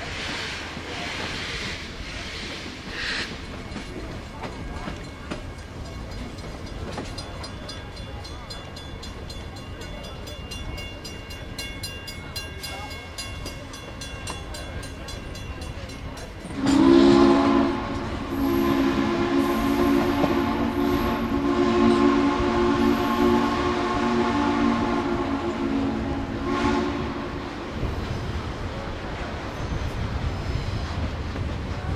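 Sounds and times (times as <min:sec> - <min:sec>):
train rolling on rails: 0:00.0 - 0:31.9
steam whistle blowing: 0:16.5 - 0:27.4.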